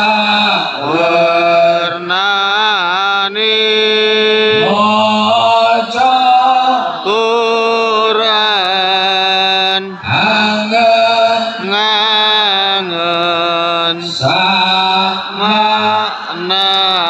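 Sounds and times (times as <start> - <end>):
man chanting through loudspeaker: 0.0 - 17.0.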